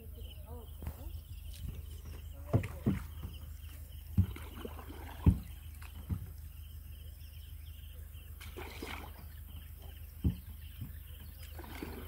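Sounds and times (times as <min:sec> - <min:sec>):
faint chirping: 0:00.0 - 0:12.0
dull knocks against boat hull: 0:02.4 - 0:03.5, 0:04.1 - 0:06.4, 0:10.2 - 0:11.3.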